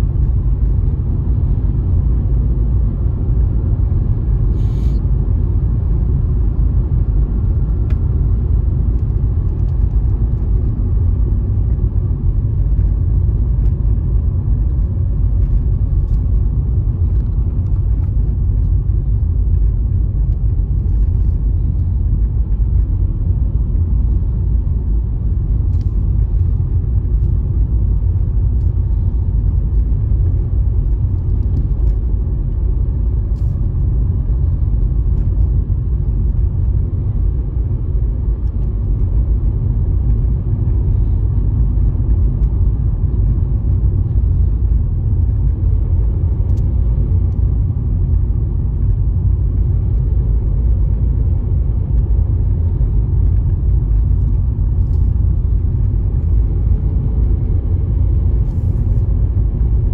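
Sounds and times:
car engine and tyres rumbling: 0.0s - 59.9s.

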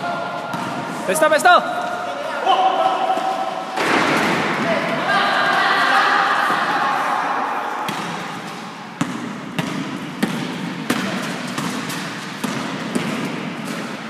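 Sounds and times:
basketball bouncing on court floor: 0.5s - 0.9s, 7.9s - 14.0s.

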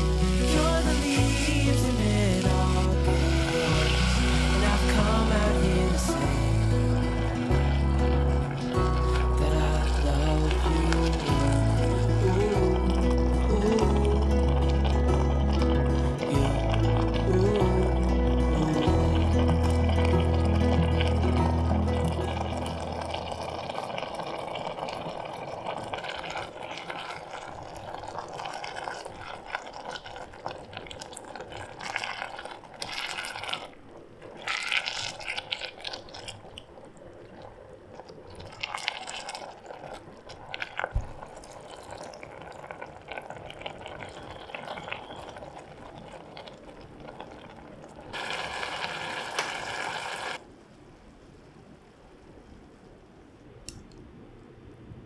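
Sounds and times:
spatula stirring: 0.0s - 18.0s
food sizzling and bubbling in pot: 0.0s - 50.5s.

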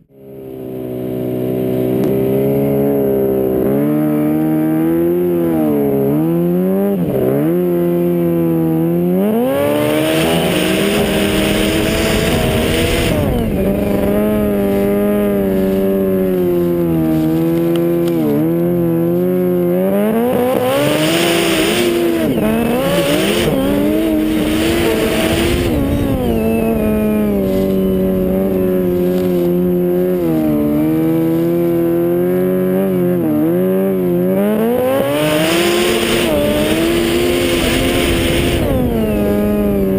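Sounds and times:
snowmobile engine revving: 0.0s - 39.9s
rushing noise: 20.9s - 30.4s.

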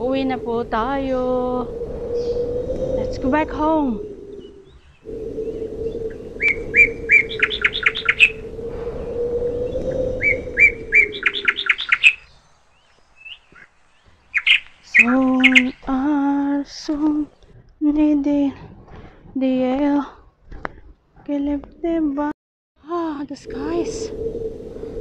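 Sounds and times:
songbird chirping: 0.0s - 18.6s, 22.9s - 25.0s.

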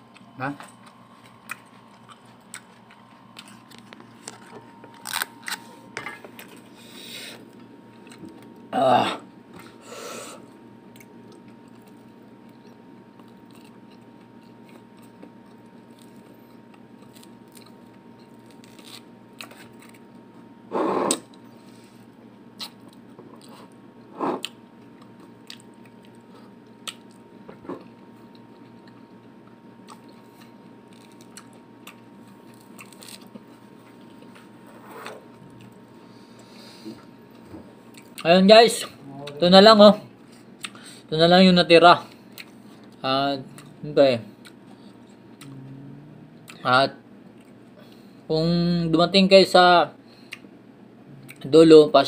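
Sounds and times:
person chewing fruit: 0.0s - 6.7s, 7.4s - 8.7s, 10.9s - 20.2s, 22.6s - 38.3s, 40.2s - 40.9s, 42.1s - 43.8s, 44.4s - 48.1s, 51.1s - 51.5s
room hum: 0.0s - 52.0s.

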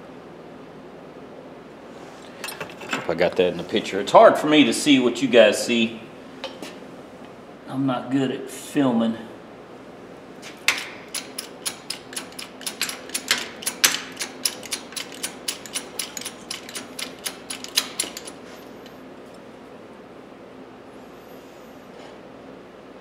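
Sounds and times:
hydraulic press clicking: 10.6s - 18.9s.

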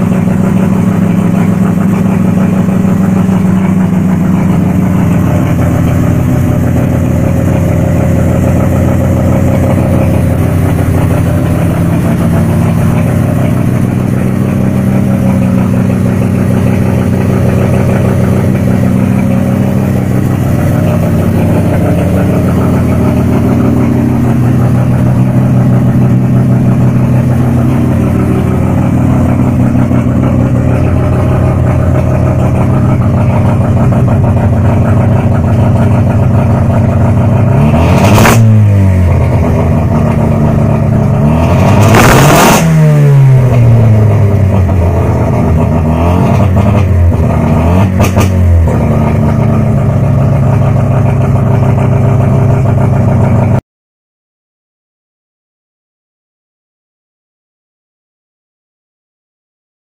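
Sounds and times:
rotary engine idling: 0.0s - 38.1s.

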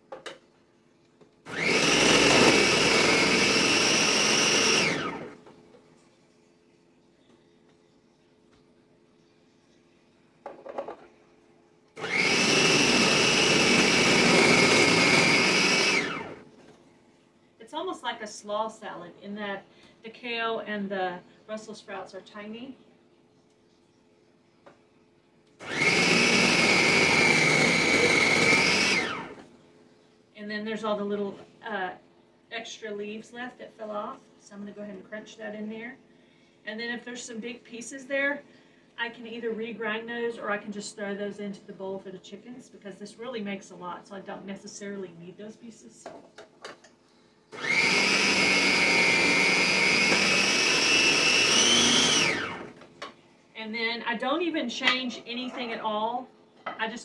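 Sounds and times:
food processor chopping: 1.5s - 5.3s, 12.0s - 16.4s, 25.6s - 29.4s, 47.6s - 52.8s.

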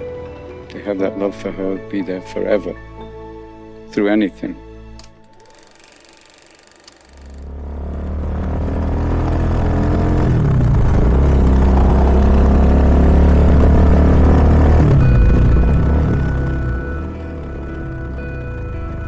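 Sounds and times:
motorcycle engine revving: 5.4s - 19.0s.

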